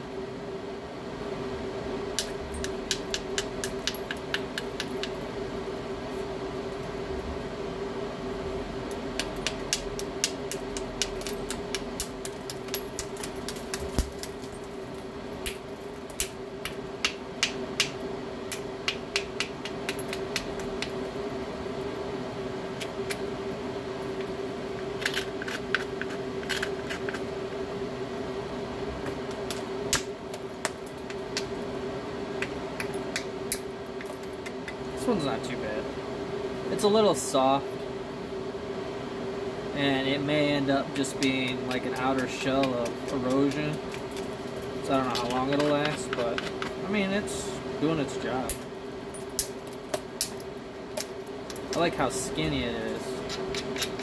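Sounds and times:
stone tapping stone clicks: 0:09.2 - 0:14.3, 0:16.2 - 0:21.0.

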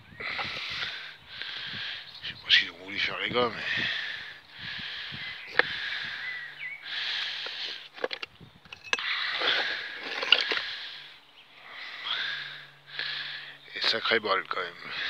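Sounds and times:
person breathing heavily: 0:00.1 - 0:02.2, 0:03.4 - 0:08.0, 0:09.0 - 0:13.6, 0:14.8 - 0:15.0.

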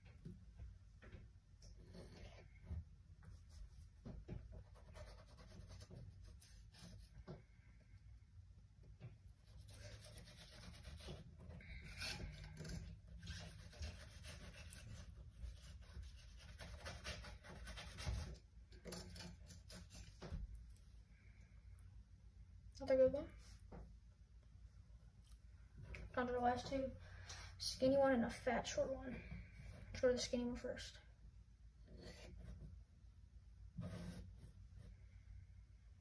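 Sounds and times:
knife scraping fish skin: 0:09.7 - 0:20.3.

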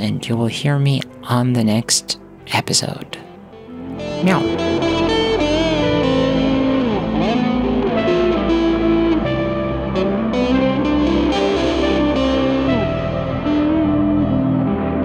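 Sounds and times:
electric guitar sliding notes: 0:03.3 - 0:15.0
steady bass line: 0:03.7 - 0:15.0.

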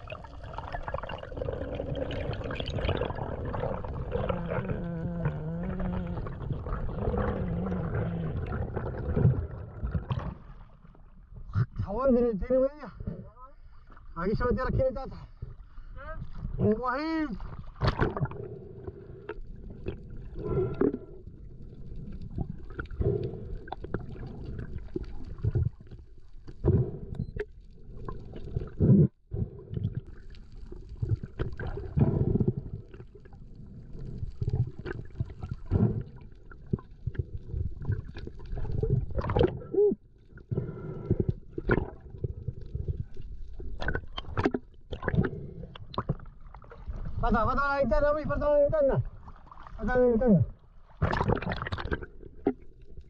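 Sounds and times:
muffled water sloshing underwater: 0:00.0 - 0:11.9, 0:12.9 - 0:53.0
water splashes: 0:16.2 - 0:18.4, 0:30.0 - 0:40.4, 0:43.1 - 0:53.0.

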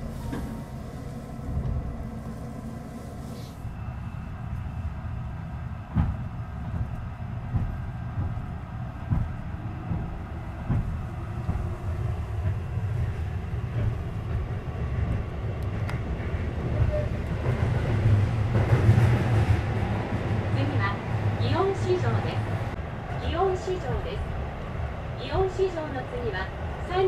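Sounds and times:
train cabin rumble: 0:00.0 - 0:27.0
wheels knocking on rails: 0:05.9 - 0:19.6.

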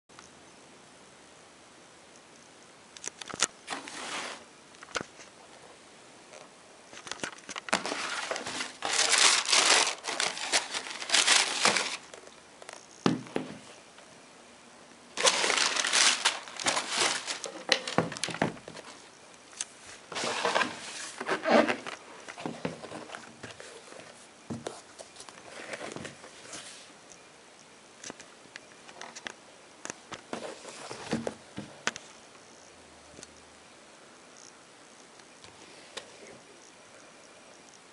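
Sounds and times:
packing paper crinkling: 0:07.0 - 0:12.4, 0:15.2 - 0:19.1.

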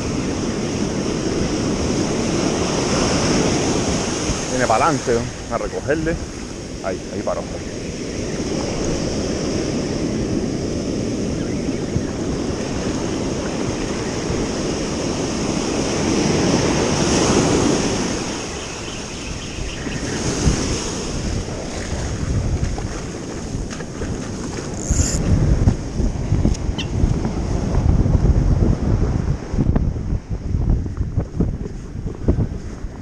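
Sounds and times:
ocean surf on beach: 0:00.0 - 0:33.0
wind buffeting microphone: 0:00.0 - 0:33.0.

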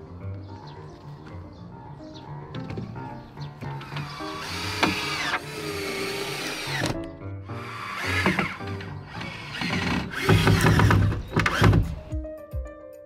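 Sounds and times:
background music: 0:00.0 - 0:13.0
power tool running: 0:03.8 - 0:11.9.

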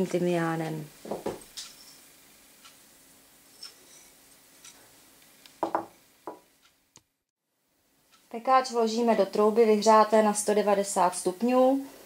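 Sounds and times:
ceramic bowl knocking on wood: 0:01.1 - 0:01.4, 0:05.6 - 0:06.4.

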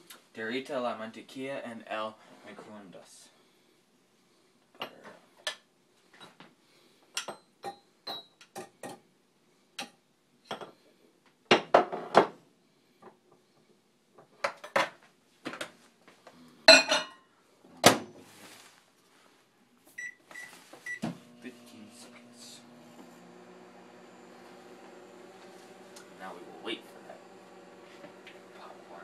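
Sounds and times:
dishes and utensils clinking: 0:16.7 - 0:17.2
microwave keypad beeps: 0:20.0 - 0:21.0.

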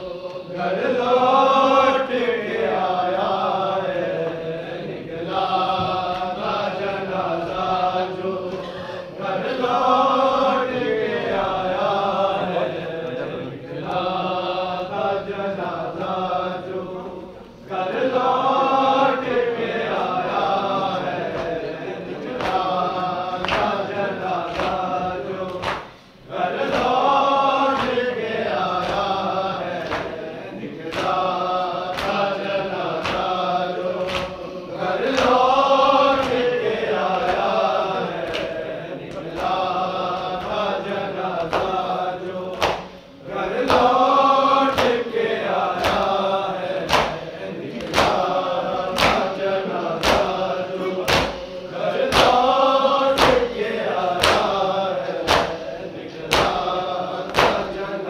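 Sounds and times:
voices chanting a lament: 0:00.0 - 0:58.0
sharp chest slaps: 0:46.9 - 0:47.2, 0:49.0 - 0:49.3, 0:51.1 - 0:51.5, 0:54.2 - 0:54.5, 0:55.3 - 0:55.6, 0:57.3 - 0:57.6.

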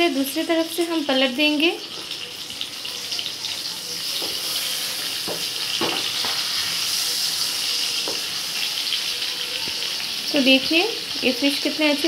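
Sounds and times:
fish sizzling in oil: 0:00.0 - 0:12.0
wooden spatula knocking pan: 0:05.2 - 0:06.4.

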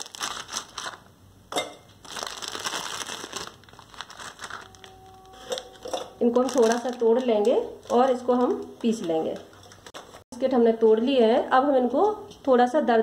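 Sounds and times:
foil wrapper crinkling: 0:00.0 - 0:01.1, 0:01.9 - 0:05.7, 0:06.3 - 0:10.2.

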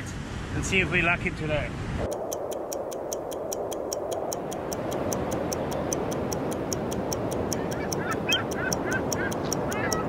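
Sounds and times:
music with fast ticking beat: 0:02.1 - 0:10.0.

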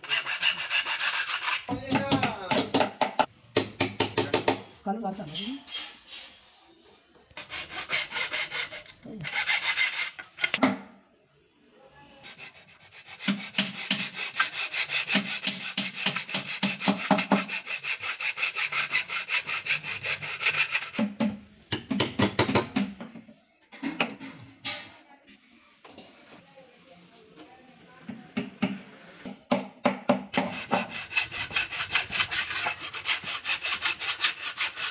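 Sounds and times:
hand saw cutting wood: 0:00.0 - 0:01.7, 0:07.4 - 0:10.6, 0:12.2 - 0:21.0, 0:30.4 - 0:34.9.

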